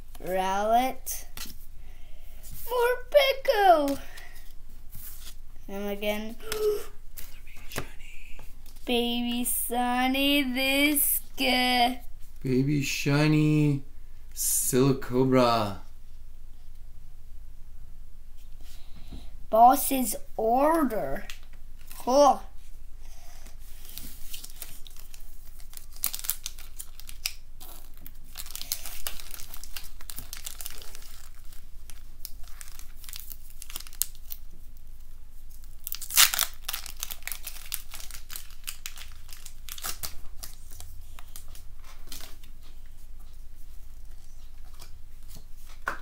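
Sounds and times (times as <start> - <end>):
foil wrapper crinkling and tearing: 23.7 - 34.9, 35.5 - 42.6.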